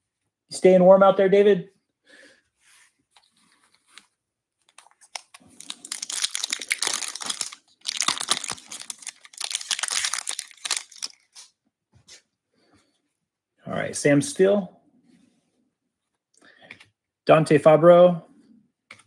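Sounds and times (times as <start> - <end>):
foil wrapper tearing and crinkling: 4.7 - 11.5.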